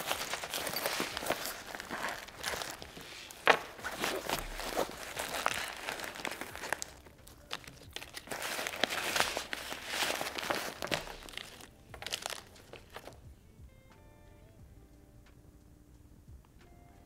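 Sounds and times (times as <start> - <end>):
plastic packets crinkling: 0.0 - 13.2
zippered pouch rustling: 0.0 - 13.3.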